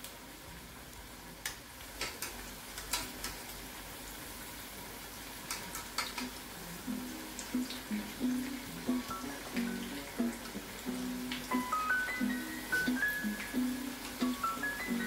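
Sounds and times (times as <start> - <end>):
food sizzling in oil: 0.0 - 15.0
utensil clicking against pan: 1.4 - 3.4, 5.5 - 6.4
faint guitar music: 6.8 - 15.0.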